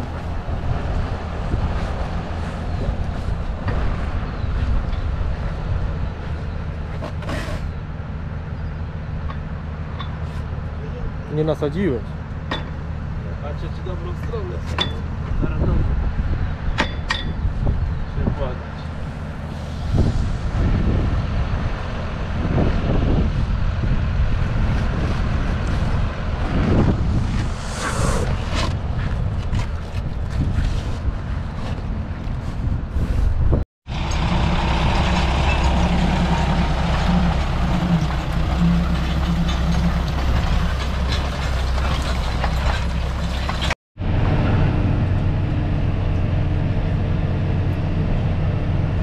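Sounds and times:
wind buffeting microphone: 0.0 - 6.9, 15.1 - 49.0
tractor engine humming: 33.9 - 49.0.

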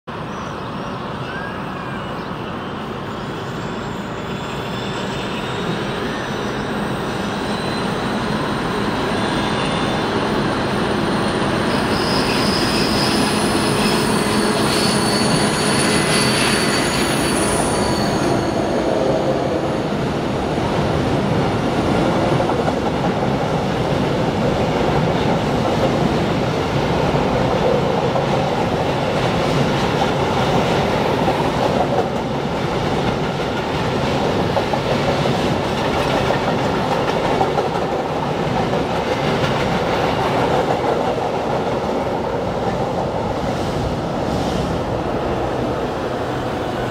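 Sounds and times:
train wheel squeal: 0.3 - 20.0.

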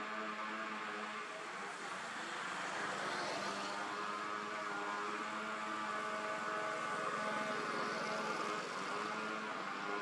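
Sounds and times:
steady motor hum: 3.7 - 10.0.

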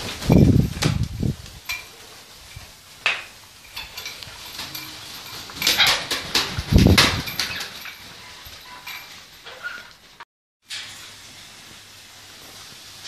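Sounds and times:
macaws flapping wings: 0.0 - 2.8, 3.7 - 9.3.

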